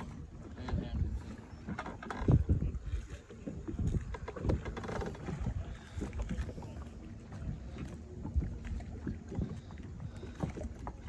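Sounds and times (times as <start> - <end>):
waves lapping against boat: 0.0 - 11.0
wind buffeting microphone: 0.0 - 11.0.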